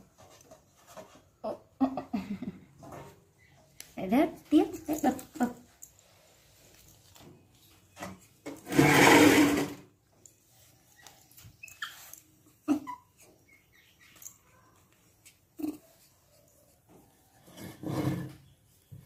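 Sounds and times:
faint monkey squeaks: 0:10.9 - 0:14.4.

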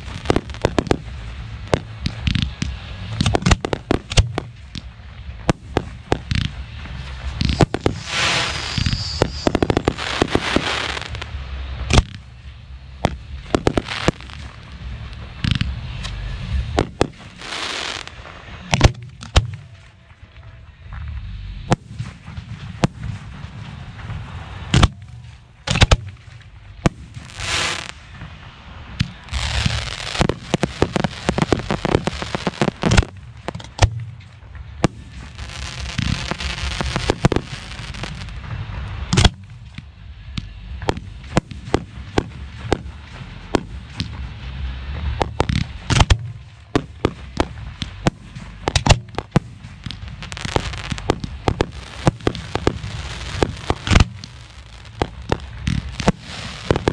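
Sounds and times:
dense crackling: 0:00.0 - 0:20.0, 0:21.7 - 0:39.9, 0:40.8 - 0:56.9
low rumble: 0:00.0 - 0:56.9
firework launch thumps: 0:01.7 - 0:11.2, 0:29.0 - 0:35.3, 0:35.9 - 0:39.9, 0:45.0 - 0:56.9
pulsing whine: 0:06.1 - 0:18.7
firework shell bursts: 0:07.3 - 0:11.2.

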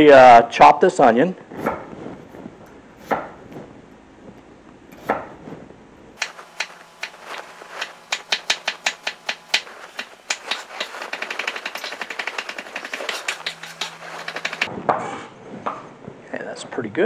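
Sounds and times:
knife chopping on wooden board: 0:01.6 - 0:01.9, 0:03.0 - 0:03.4, 0:05.0 - 0:05.4, 0:06.2 - 0:14.7
knock: 0:07.8 - 0:14.7.

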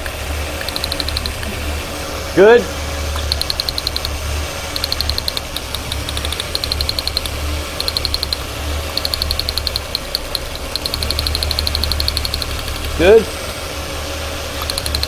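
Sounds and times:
car engine idling: 0:00.0 - 0:15.0
spark ticking: 0:00.6 - 0:01.5, 0:03.2 - 0:13.1, 0:14.6 - 0:15.0.

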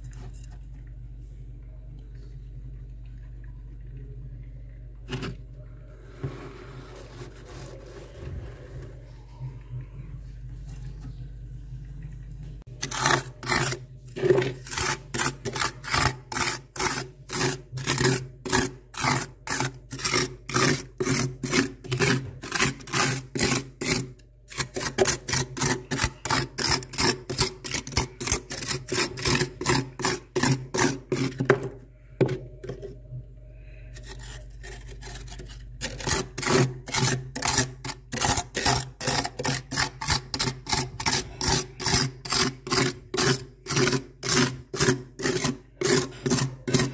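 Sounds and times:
hand scraping frost in a freezer: 0:06.0 - 0:09.2, 0:12.7 - 0:33.0, 0:33.7 - 0:46.9.

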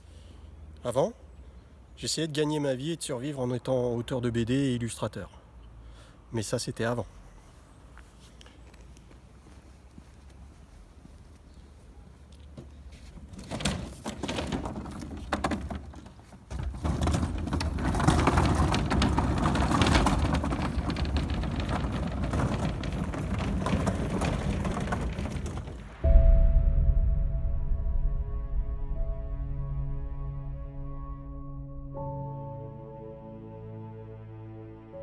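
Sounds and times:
wheeled bins rattling on asphalt: 0:12.6 - 0:26.0
knocks: 0:13.4 - 0:26.0
music: 0:26.1 - 0:35.0.

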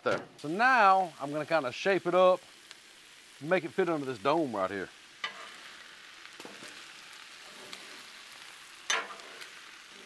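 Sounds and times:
food sizzling on griddle: 0:00.4 - 0:10.0
metal spatulas scraping: 0:07.4 - 0:08.0.

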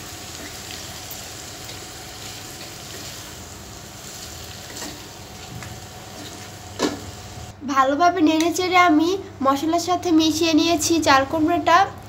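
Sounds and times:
oil sizzling in a frying pan: 0:00.0 - 0:07.5
spatula scraping a pan: 0:04.6 - 0:05.5.

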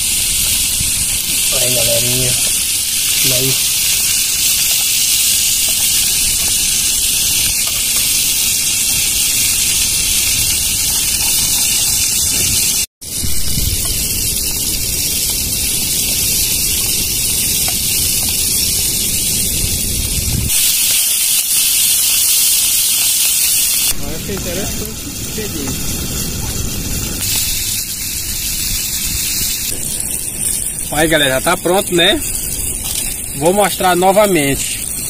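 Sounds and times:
seafood sizzling in hot oil: 0:00.0 - 0:35.0.

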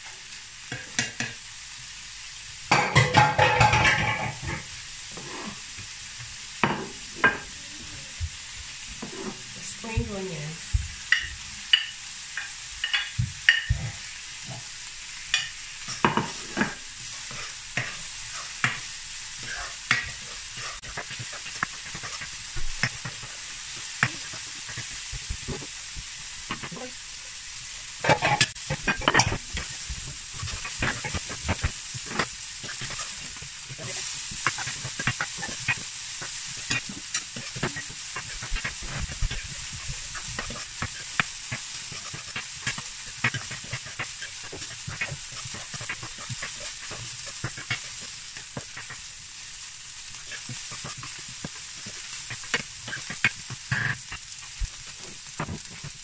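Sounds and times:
vegetables sizzling in frying pan: 0:00.0 - 0:56.0
spatula scraping a pan: 0:02.7 - 0:05.8, 0:08.8 - 0:10.2, 0:15.3 - 0:27.0, 0:28.0 - 0:49.3, 0:50.0 - 0:56.0.

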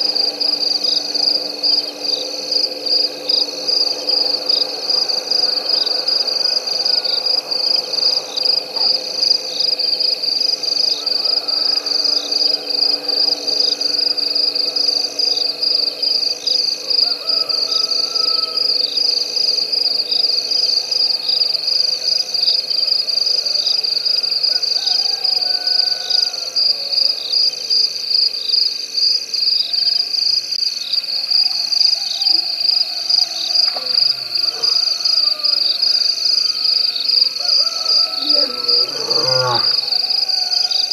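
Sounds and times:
chorus of calling frogs: 0:00.0 - 0:27.6, 0:30.8 - 0:40.9
wavering rising animal call: 0:33.8 - 0:35.8, 0:37.4 - 0:40.6.

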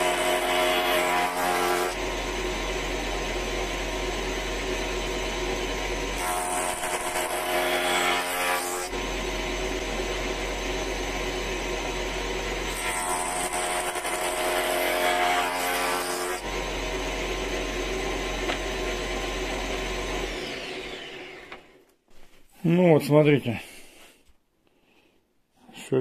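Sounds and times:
knives planing wood: 0:00.0 - 0:03.3, 0:04.2 - 0:10.4, 0:12.6 - 0:21.6
jointer motor and cutter head running: 0:00.0 - 0:21.8
motor winding down whine: 0:01.3 - 0:07.2, 0:08.9 - 0:14.4, 0:16.4 - 0:21.8.

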